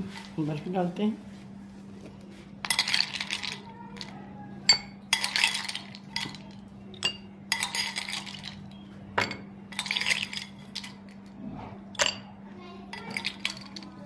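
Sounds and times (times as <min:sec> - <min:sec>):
ice cubes clinking into glasses: 0:02.6 - 0:04.1, 0:04.7 - 0:11.2, 0:12.0 - 0:12.3, 0:12.9 - 0:14.0.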